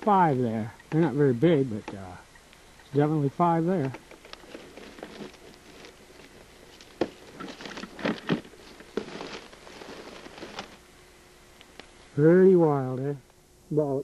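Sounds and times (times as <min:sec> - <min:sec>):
twigs snapping: 0:03.8 - 0:10.8
dry leaves crackling and rustling: 0:04.1 - 0:10.9.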